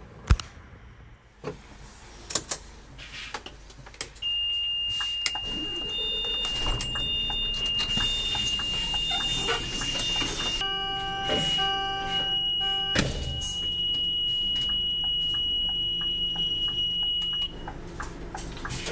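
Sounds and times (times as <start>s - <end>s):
high electronic warning beep: 4.2s - 17.8s.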